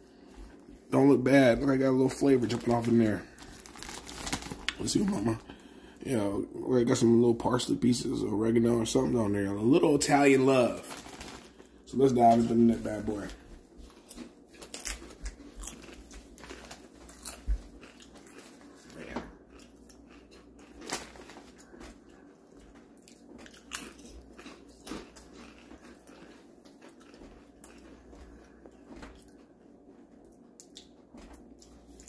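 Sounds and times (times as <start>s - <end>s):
person chewing potato chips: 2.1s - 5.7s, 10.2s - 11.8s, 12.4s - 32.0s.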